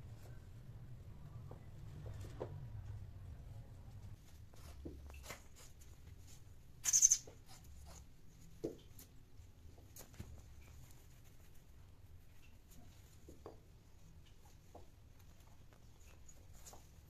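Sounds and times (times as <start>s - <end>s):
fur and paws rubbing on tiles: 3.7s - 17.0s.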